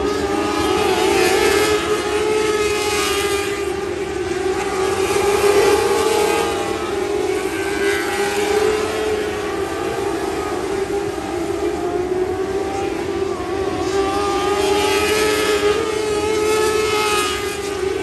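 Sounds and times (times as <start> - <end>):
racing car engines whining: 0.0 - 18.0.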